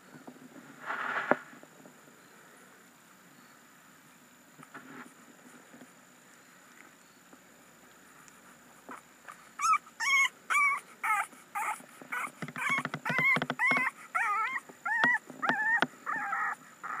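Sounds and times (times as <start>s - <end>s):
puppy whimpering and crying: 9.3s - 17.0s.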